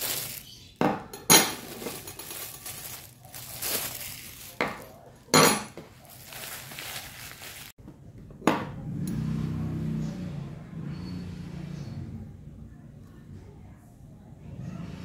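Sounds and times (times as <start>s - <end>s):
plastic sleeves crinkling: 0.0s - 0.7s, 1.6s - 5.2s, 5.9s - 7.8s
metal spoons clinking: 1.1s - 3.0s.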